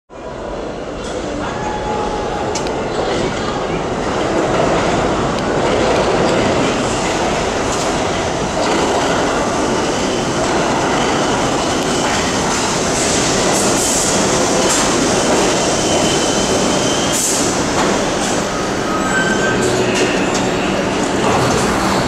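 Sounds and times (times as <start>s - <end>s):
train wheels rumbling on rails: 0.6s - 22.0s
faint high wheel squeal: 18.6s - 20.6s.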